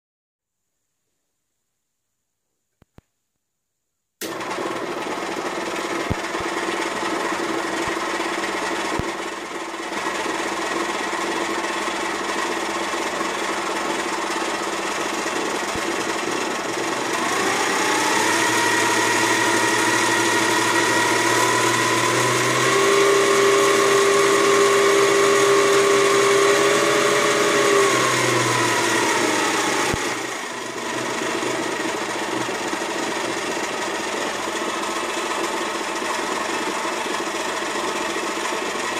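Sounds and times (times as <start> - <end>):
stand mixer running: 4.2 - 38.9
motor whine: 15.6 - 38.9.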